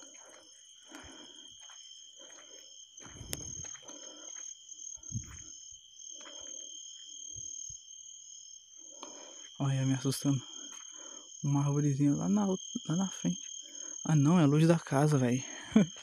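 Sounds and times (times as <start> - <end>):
footsteps scuffing on dirt road: 0.0 - 7.2
crickets chirring: 0.0 - 16.0.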